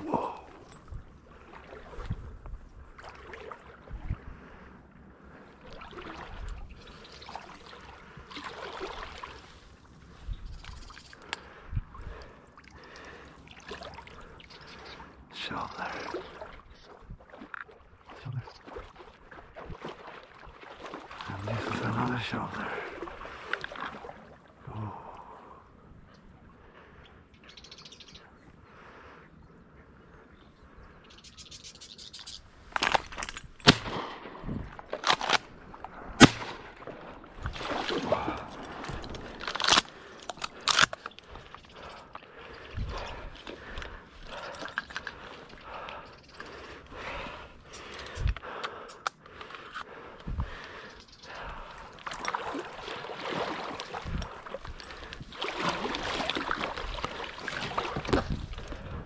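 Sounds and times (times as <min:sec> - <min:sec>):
water sloshing and splashing: 0:00.0 - 0:25.5, 0:31.9 - 0:59.0
reeds and clothing rustling: 0:32.2 - 0:48.8, 0:49.4 - 0:59.0
shotgun firing: 0:33.6 - 0:34.3, 0:36.2 - 0:36.7
gun being handled: 0:34.8 - 0:36.6, 0:38.8 - 0:41.6, 0:48.0 - 0:49.9.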